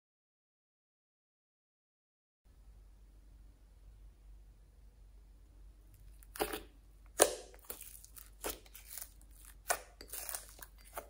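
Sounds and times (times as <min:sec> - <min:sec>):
sticky slime crackles and pops: 0:07.2 - 0:11.0.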